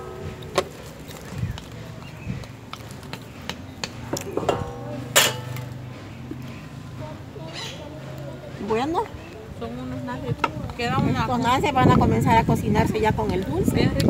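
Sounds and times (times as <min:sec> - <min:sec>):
metal pot and lid clinking: 0:04.3 - 0:05.9
sharp ringing clank: 0:04.4 - 0:06.0.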